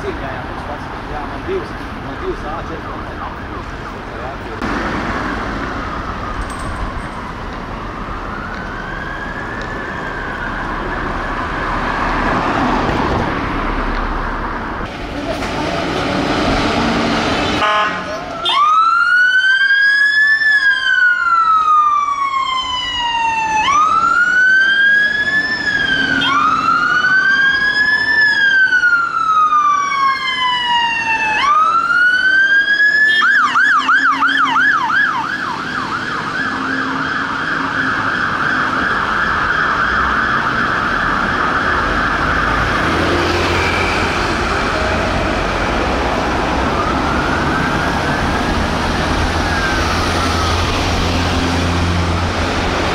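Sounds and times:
fire engine siren wailing: 5.2 - 12.9, 15.8 - 52.9.

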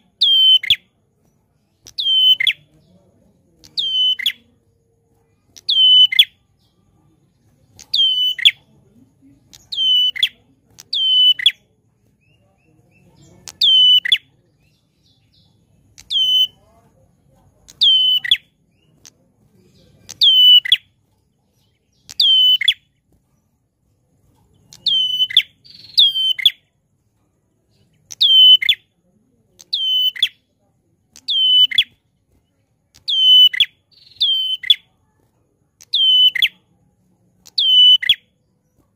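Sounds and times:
bird giving sharp downward calls: 0.2 - 0.9, 1.9 - 2.7, 3.8 - 4.5, 5.6 - 6.4, 7.8 - 8.6, 9.5 - 11.6, 13.5 - 14.3, 16.0 - 16.6, 17.7 - 18.5, 20.1 - 20.8, 22.1 - 22.8, 24.7 - 26.6, 31.2 - 32.0, 33.0 - 34.8, 35.8 - 36.6.

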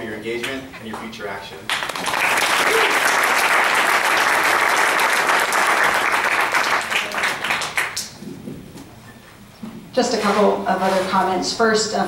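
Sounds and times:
audience applauding: 1.7 - 8.2.

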